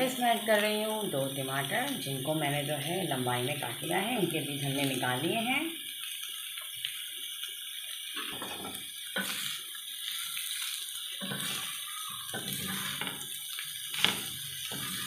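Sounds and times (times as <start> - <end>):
food sizzling in a frying pan: 0.0 - 15.0
spatula scraping pan: 11.2 - 15.0.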